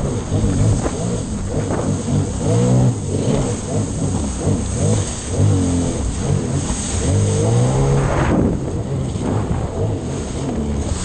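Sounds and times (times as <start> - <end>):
personal watercraft engine: 0.0 - 11.0.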